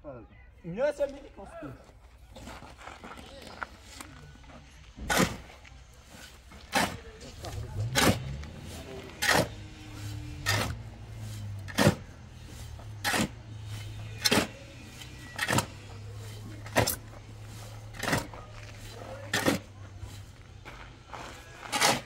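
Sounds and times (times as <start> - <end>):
shovel scraping cement mix: 4.9 - 22.0.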